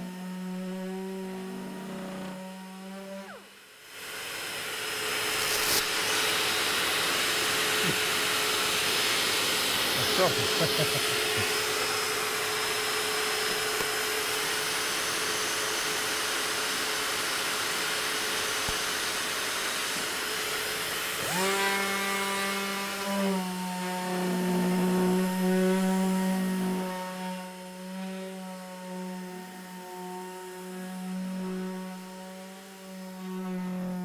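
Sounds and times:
orbital sander humming: 0.0 - 34.0
dust extraction hiss: 3.9 - 26.8.

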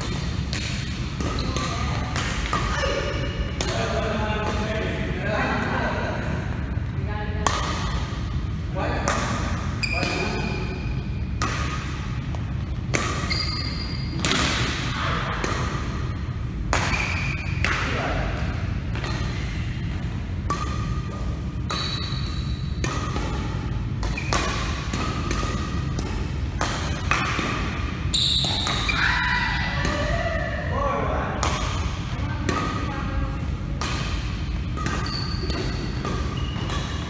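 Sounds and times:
racquets hitting shuttlecock: 0.0 - 4.7, 11.3 - 17.9, 18.9 - 29.0, 31.3 - 32.9, 33.7 - 37.0
short squeaks: 13.2 - 14.2, 35.0 - 35.6.

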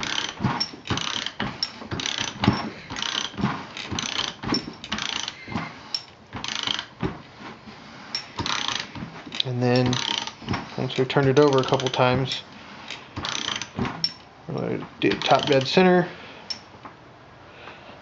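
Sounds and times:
socket ratchet clicking: 8.2 - 14.3.

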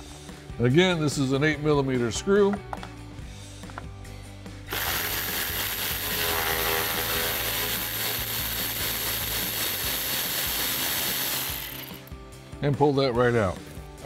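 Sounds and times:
power ratchet running: 4.7 - 12.1.

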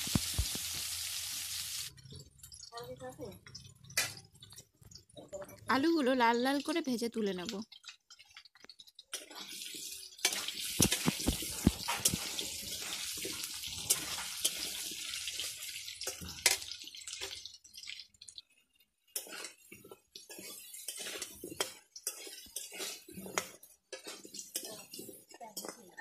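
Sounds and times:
potatoes sizzling in oil: 0.0 - 26.0
spatula scraping a pan: 7.8 - 26.0.

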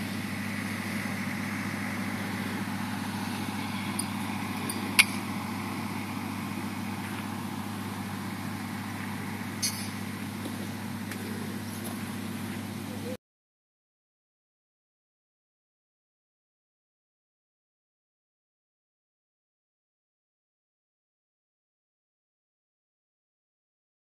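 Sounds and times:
steady low hum: 0.0 - 13.2
sharp click: 9.6 - 9.9.

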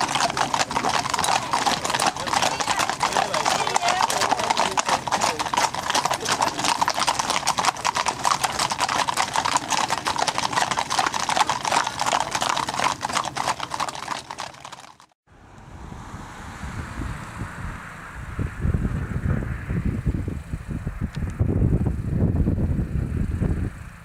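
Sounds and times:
horse hooves clip-clopping: 0.0 - 15.2
faint wind rumble: 15.4 - 24.0.

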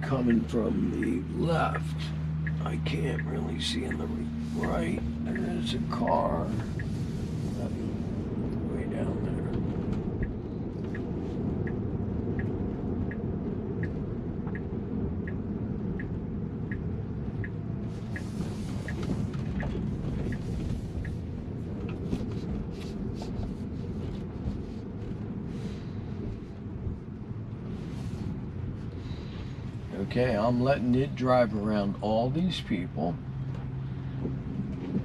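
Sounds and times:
road and tyre rumble: 0.0 - 35.0
turn signal ticking: 0.0 - 35.0
crackles and rustles: 17.8 - 30.1.

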